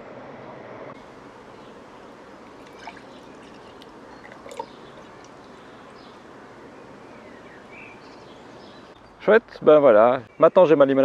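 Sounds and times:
liquid pouring into glass: 2.4 - 5.6.

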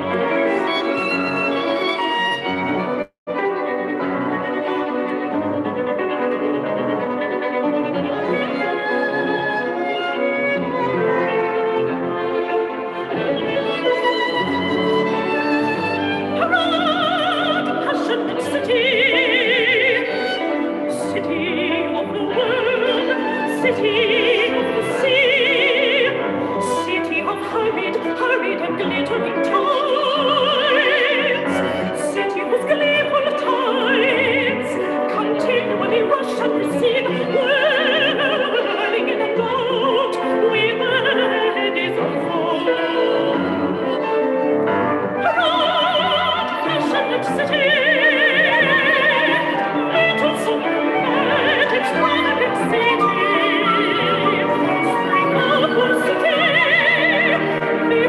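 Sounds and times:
soprano singing: 0.0 - 58.0
chamber ensemble playing: 30.6 - 58.0.

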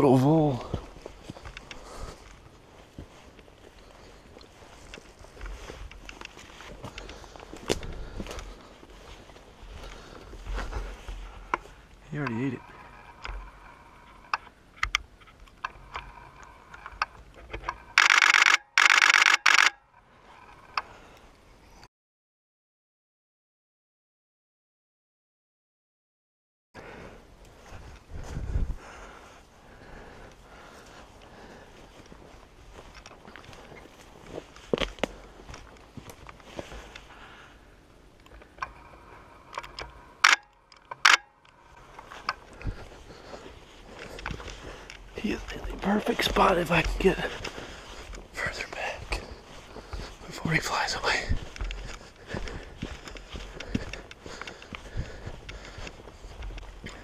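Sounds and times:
camera shutter bursts: 17.9 - 19.8, 40.2 - 41.3.

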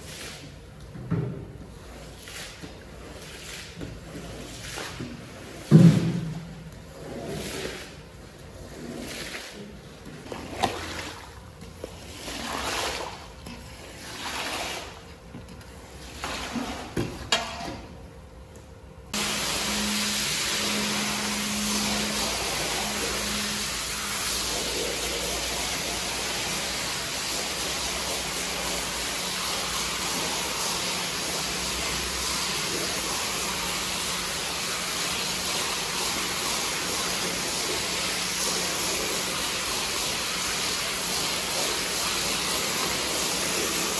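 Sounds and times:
squeegee scraping wet carpet: 1.8 - 5.9, 6.7 - 11.2, 11.8 - 15.2
pressure washer spraying: 19.2 - 43.9.

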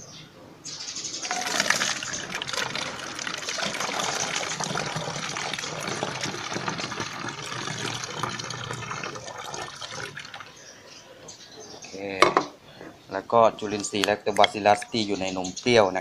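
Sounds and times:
liquid pouring into a bottle: 1.2 - 10.6.

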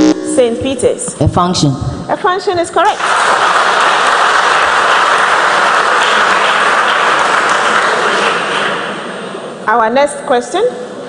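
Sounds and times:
children applauding: 3.0 - 9.0.

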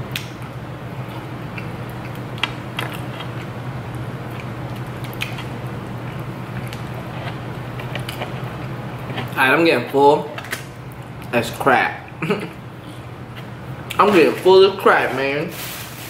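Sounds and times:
steady low hum: 0.0 - 16.0
chewing crispy chicken: 0.1 - 11.4.

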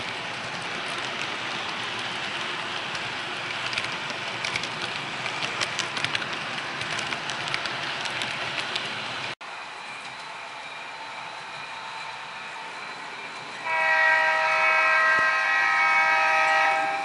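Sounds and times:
wheel clicks on rail joints: 0.0 - 9.0.

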